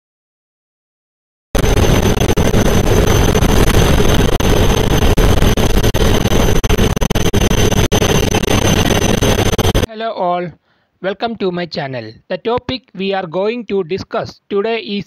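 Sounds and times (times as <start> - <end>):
rushing noise: 1.6 - 9.9
thin high whine: 1.6 - 9.9.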